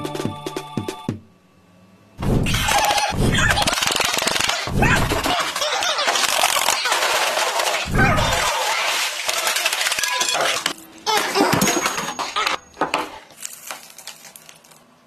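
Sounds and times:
ice cubes clinking in plastic tub: 3.7s - 14.8s.

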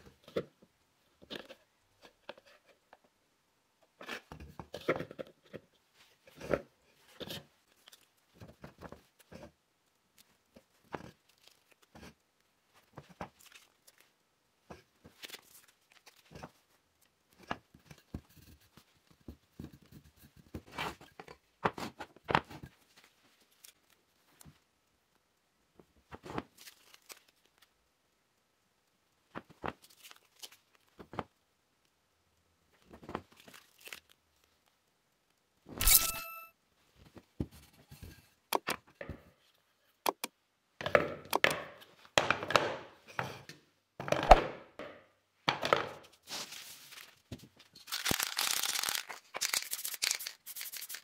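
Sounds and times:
wooden parts knocking and clicking: 40.0s - 42.8s.

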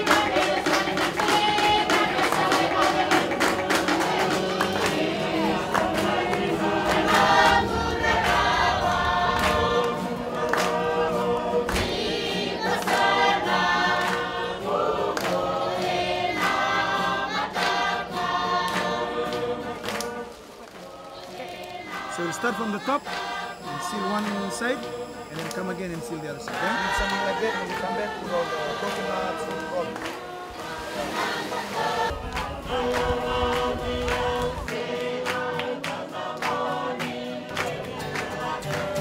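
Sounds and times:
choir singing in harmony: 0.0s - 39.0s.

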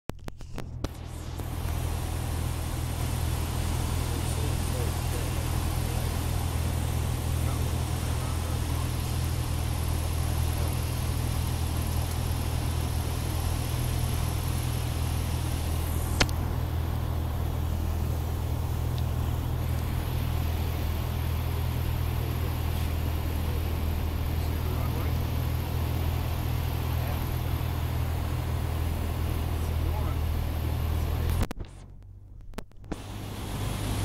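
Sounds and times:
propeller plane engine droning: 0.2s - 34.0s
airflow hiss: 1.0s - 31.0s.

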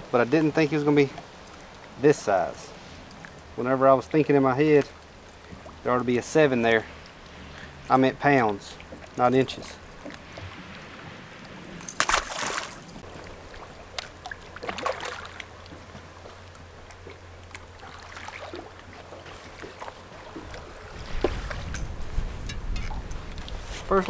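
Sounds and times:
water splash: 8.3s - 15.7s, 17.0s - 22.0s.

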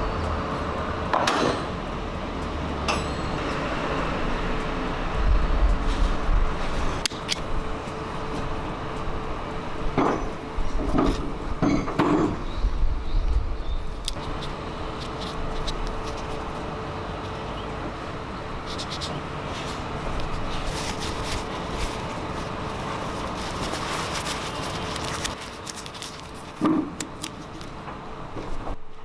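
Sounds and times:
clicks and handling noise: 7.0s - 8.5s, 13.9s - 17.4s, 18.6s - 28.7s.

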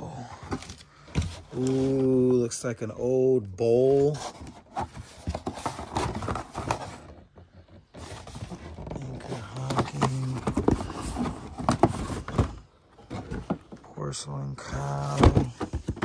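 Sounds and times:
objects knocking and scraping in a box: 4.0s - 14.0s, 14.7s - 16.0s.

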